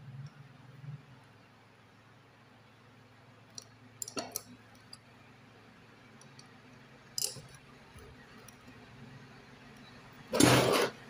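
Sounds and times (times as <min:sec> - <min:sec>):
spanner clicking on metal: 0:03.6 - 0:05.0, 0:07.2 - 0:07.6.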